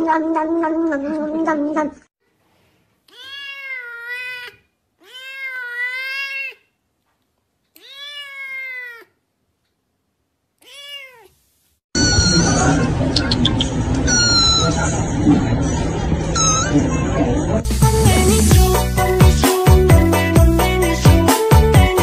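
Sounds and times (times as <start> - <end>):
kitten meowing: 3.1 - 6.6, 7.8 - 9.1, 10.6 - 11.3, 12.0 - 12.9, 14.1 - 14.8
loud cat sound: 3.1 - 6.7, 7.7 - 9.2, 10.6 - 11.4.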